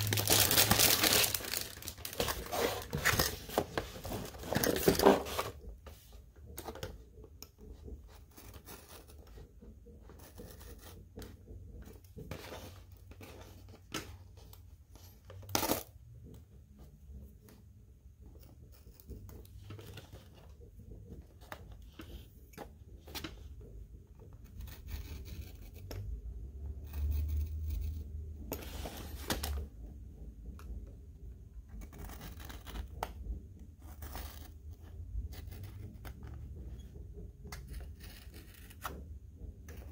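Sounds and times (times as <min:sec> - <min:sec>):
tape and card crinkling: 0:00.0 - 0:05.5.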